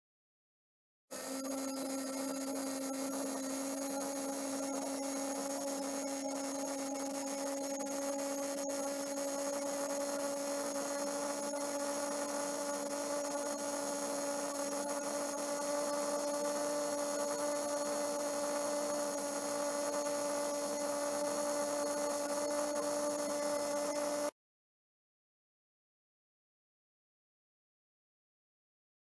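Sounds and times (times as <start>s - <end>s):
small electric motor humming: 1.1s - 24.3s.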